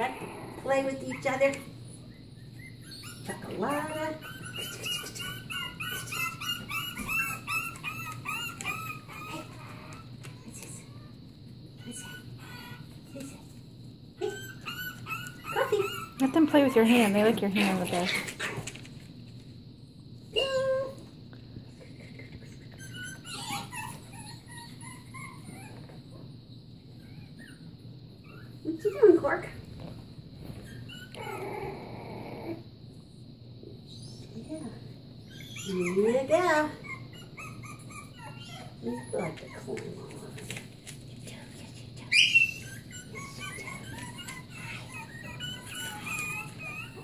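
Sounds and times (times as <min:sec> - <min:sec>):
puppies yipping and squealing: 0:00.7 - 0:10.4, 0:11.8 - 0:13.2, 0:14.2 - 0:18.7, 0:22.4 - 0:26.2, 0:26.9 - 0:29.3, 0:30.5 - 0:32.6, 0:33.9 - 0:34.6, 0:35.2 - 0:39.8, 0:42.1 - 0:47.0.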